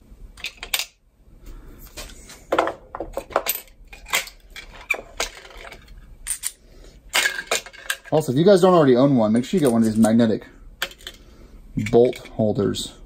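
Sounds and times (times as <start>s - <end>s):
metal bolts and tools clinking: 0.4s - 1.0s, 2.5s - 8.3s, 10.8s - 11.2s, 11.8s - 12.6s.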